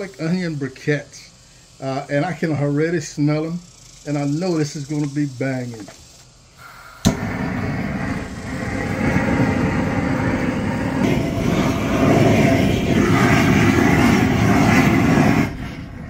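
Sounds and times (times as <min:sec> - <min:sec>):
propane torch roaring: 0:00.0 - 0:16.0.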